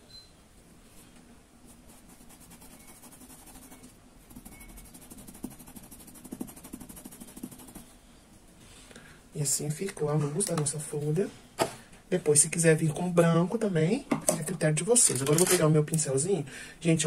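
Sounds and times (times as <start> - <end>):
brush ticking against fabric: 1.7 - 7.9
paintbrush brushing over cloth: 1.7 - 8.0.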